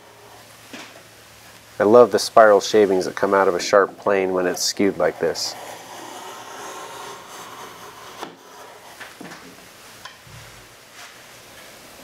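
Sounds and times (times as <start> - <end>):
hand plane shaving wood: 3.4 - 9.0.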